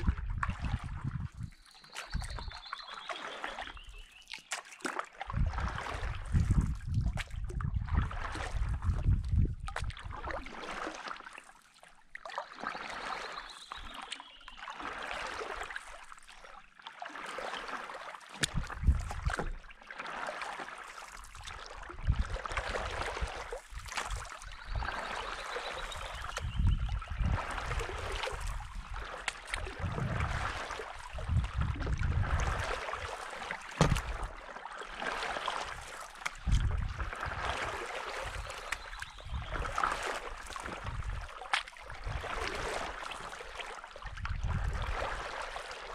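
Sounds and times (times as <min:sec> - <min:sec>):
wind rumbling on microphone: 0:00.0 - 0:02.6, 0:05.2 - 0:10.3, 0:18.4 - 0:19.6, 0:21.8 - 0:33.2, 0:33.8 - 0:34.4, 0:35.6 - 0:43.0, 0:44.1 - 0:45.4
paddle pulling through water: 0:00.0 - 0:45.9
water splashing and dripping: 0:00.0 - 0:45.9.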